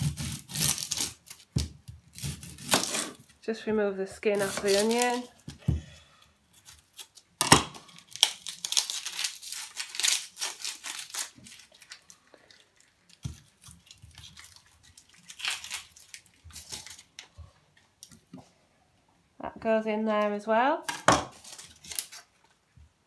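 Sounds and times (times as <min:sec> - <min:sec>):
onion skin crackling and tearing: 0:00.0 - 0:03.3, 0:04.3 - 0:17.4, 0:20.9 - 0:22.4.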